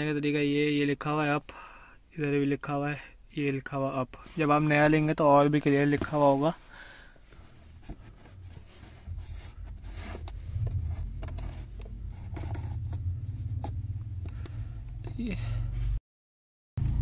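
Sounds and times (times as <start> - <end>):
filter scraping against plastic: 4.2 - 15.2
steady low rumble: 7.2 - 16.0.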